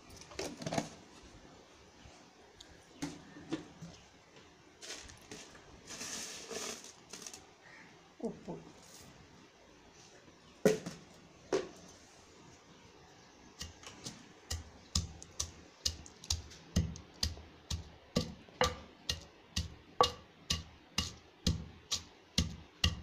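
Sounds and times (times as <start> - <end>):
pestle pounding in stone mortar: 13.6 - 23.0.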